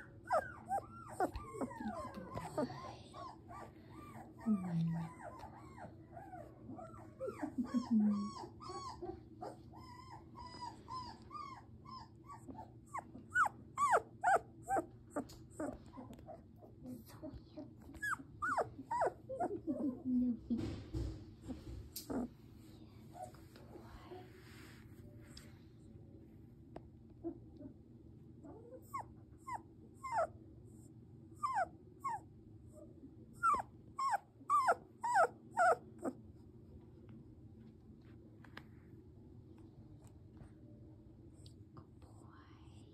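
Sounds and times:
puppy whimpering: 0:00.0 - 0:16.5, 0:17.8 - 0:20.4, 0:21.4 - 0:22.4, 0:28.4 - 0:30.4, 0:31.4 - 0:36.2.

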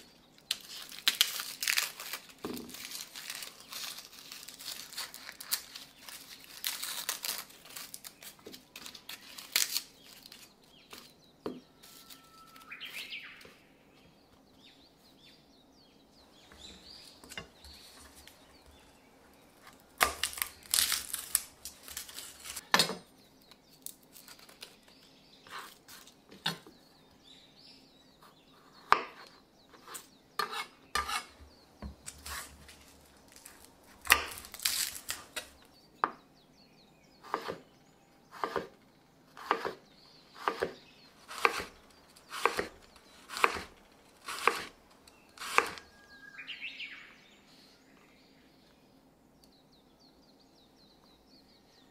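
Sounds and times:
garlic skins crinkling and tearing: 0:00.4 - 0:11.2, 0:19.6 - 0:22.8, 0:23.4 - 0:25.0, 0:32.0 - 0:35.7.

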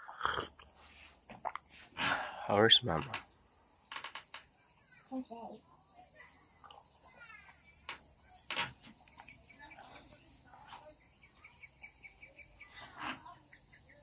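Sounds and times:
high-pitched insect chorus: 0:00.0 - 0:14.0
birds chirping: 0:06.5 - 0:14.0.

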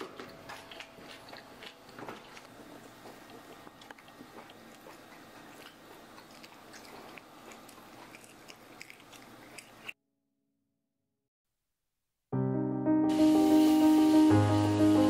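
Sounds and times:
child chewing food: 0:00.0 - 0:10.0.

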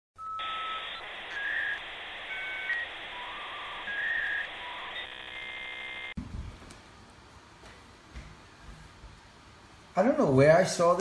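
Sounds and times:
buzzy held tone: 0:00.2 - 0:06.2.

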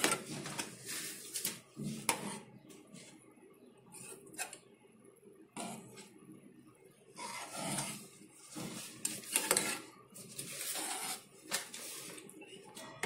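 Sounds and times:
spoon scraping metal pan: 0:01.9 - 0:02.5, 0:07.2 - 0:11.3.

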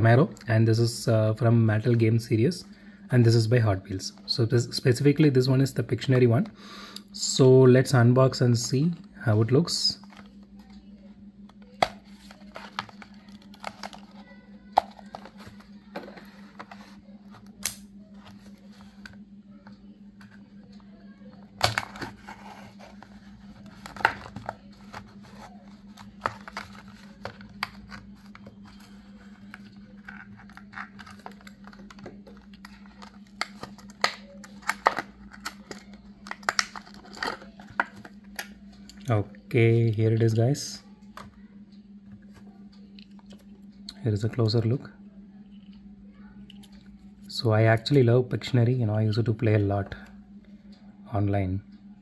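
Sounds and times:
low steady hum: 0:00.0 - 0:52.0
plastic packaging crinkling and tearing: 0:23.7 - 0:38.2.

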